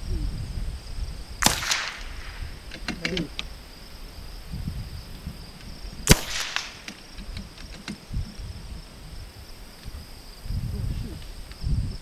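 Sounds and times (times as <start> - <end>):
high insect buzz: 0.0 - 12.0
rifle shot: 1.4 - 2.6, 6.0 - 7.0.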